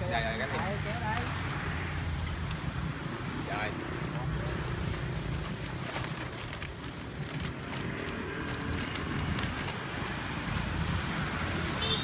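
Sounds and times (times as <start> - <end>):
road traffic rumble: 0.0 - 12.0
plastic bags crinkling: 5.0 - 10.6.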